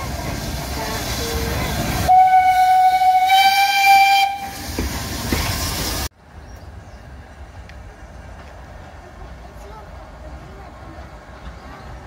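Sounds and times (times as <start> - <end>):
train moving off: 0.0 - 12.0
steam locomotive whistle: 0.9 - 4.6.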